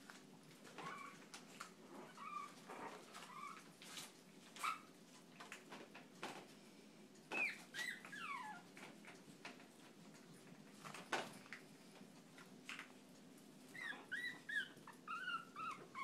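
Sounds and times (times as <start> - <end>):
paws scuffing on tile floor: 0.0 - 5.3
puppies yelping: 2.0 - 3.7, 7.3 - 8.7, 13.7 - 16.0.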